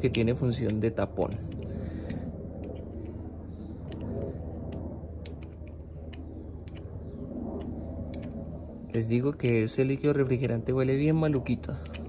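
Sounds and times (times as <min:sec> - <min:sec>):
steady low hum: 0:00.0 - 0:12.0
wrench clicking on metal bolt: 0:08.9 - 0:11.1, 0:11.8 - 0:12.0.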